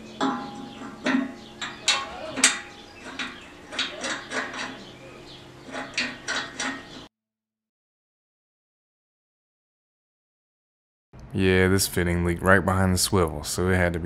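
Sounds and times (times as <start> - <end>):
metal clinks and knocks: 0.2 - 7.1.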